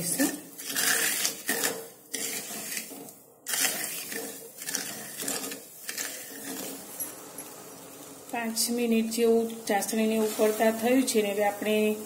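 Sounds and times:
spatula scraping sugar in pan: 0.0s - 7.1s, 9.9s - 11.8s.

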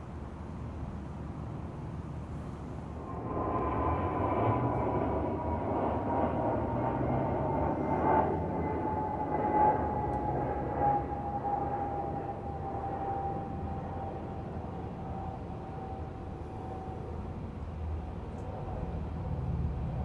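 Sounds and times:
passing vehicle rushing: 3.0s - 12.4s.

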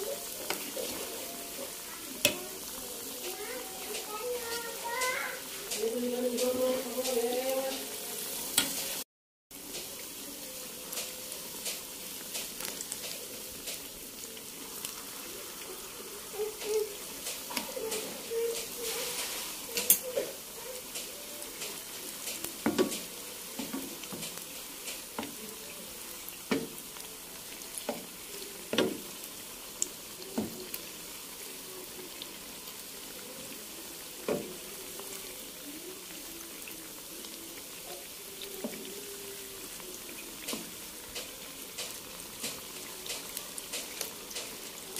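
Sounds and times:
fritters sizzling in hot oil: 0.0s - 44.9s
spatula tapping and scraping pan: 8.5s - 8.9s, 19.8s - 25.4s, 26.5s - 26.8s, 27.8s - 29.2s.

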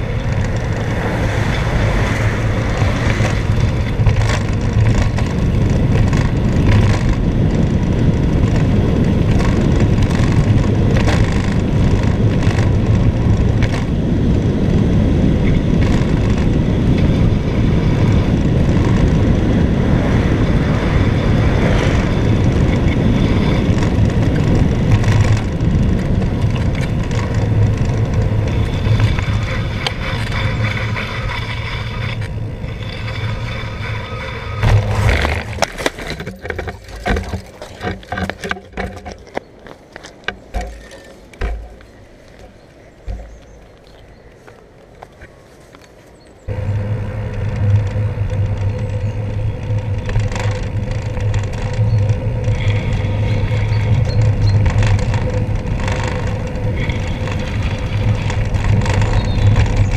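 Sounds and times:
bicycle tyres on wet road: 0.0s - 59.9s
wind rush on camera: 0.0s - 59.9s
loud knocks and rattles: 34.6s - 39.4s, 40.2s - 41.9s.

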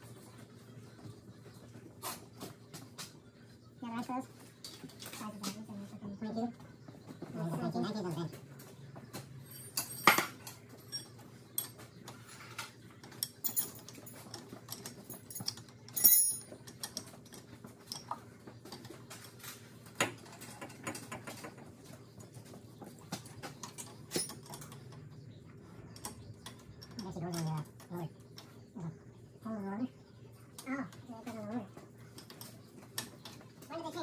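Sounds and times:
tools clinking against steel frame: 9.4s - 21.3s, 23.5s - 24.8s.

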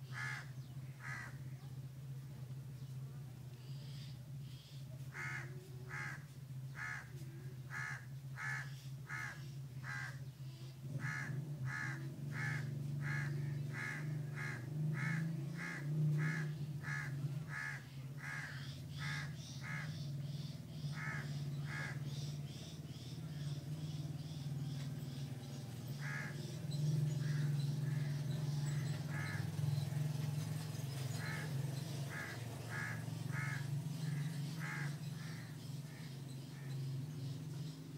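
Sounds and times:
bird calling: 11.0s - 37.9s.

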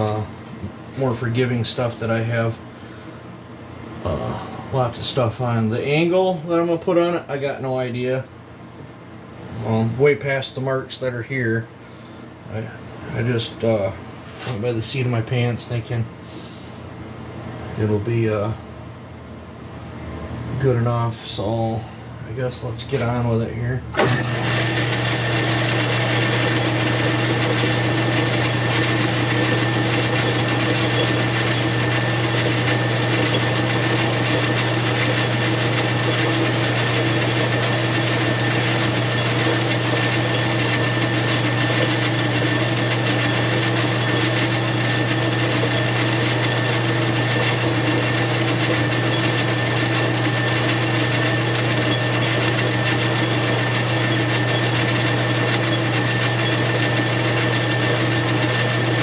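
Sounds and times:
lathe high whine: 24.0s - 59.0s
lathe motor humming: 24.0s - 59.0s.

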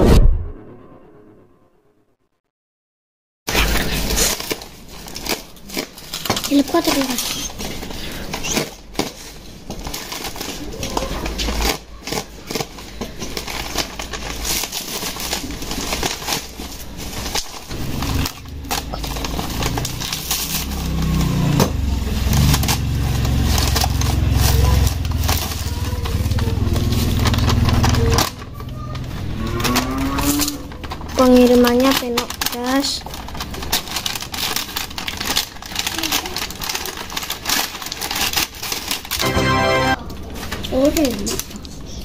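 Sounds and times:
low rumble: 0.0s - 1.8s
bubble wrap crinkling: 3.5s - 41.9s.

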